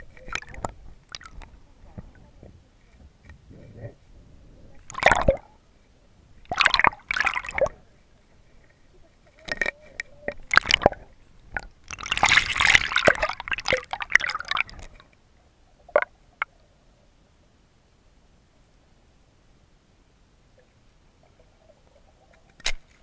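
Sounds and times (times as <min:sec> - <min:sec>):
water splashing and sloshing: 0:00.0 - 0:03.2, 0:04.7 - 0:05.6, 0:06.4 - 0:15.2.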